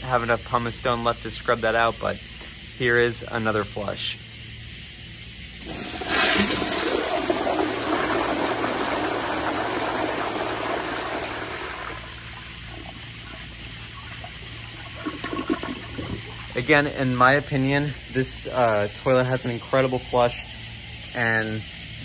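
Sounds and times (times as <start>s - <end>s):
toilet flushing: 5.6s - 17.2s.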